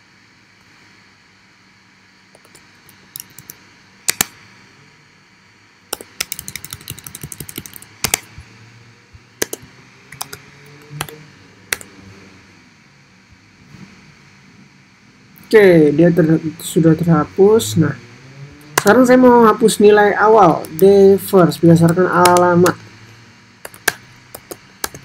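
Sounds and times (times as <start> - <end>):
keyboard typing: 2.4 - 4.3, 5.9 - 8.4, 9.4 - 11.9, 21.8 - 22.8, 23.6 - 25.0.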